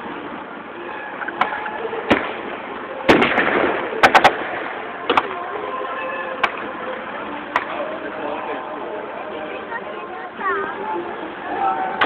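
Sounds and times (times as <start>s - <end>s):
gunshots: 2.1s - 5.2s
loud gunshot blast: 3.1s - 4.8s.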